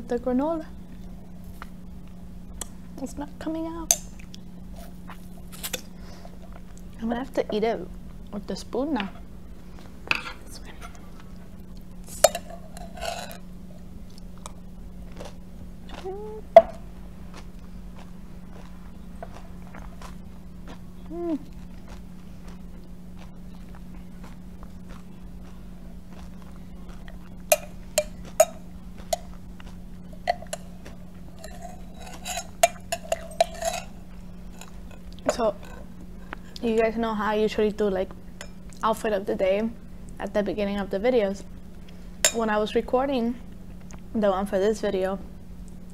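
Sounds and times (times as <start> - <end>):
steady low hum: 0.0 - 45.9
chewing and mouth sounds: 14.0 - 36.7
spoon clinking against glass: 31.4 - 33.9.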